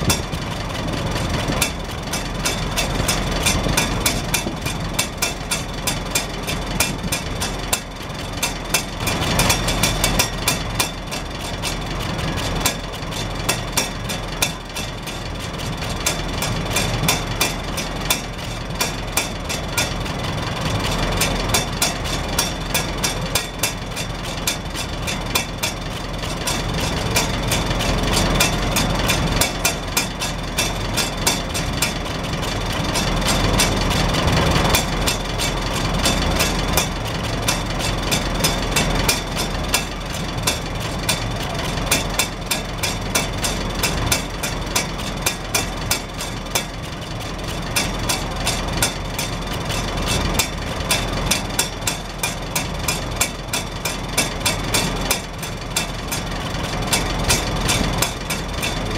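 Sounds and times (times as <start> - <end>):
exhaust flapper ticking: 0.0 - 58.9
tractor engine idling: 0.0 - 58.9.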